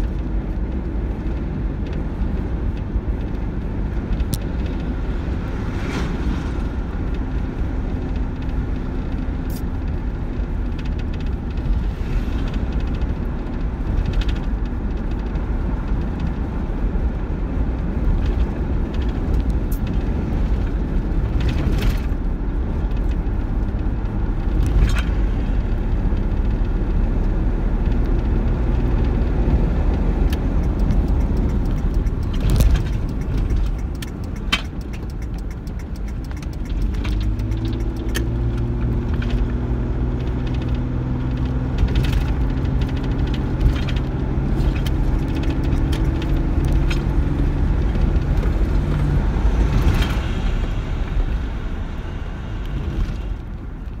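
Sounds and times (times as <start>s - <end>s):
car engine hum: 0.0s - 54.0s
road rumble: 0.0s - 54.0s
light clicks and rattles: 29.1s - 39.5s.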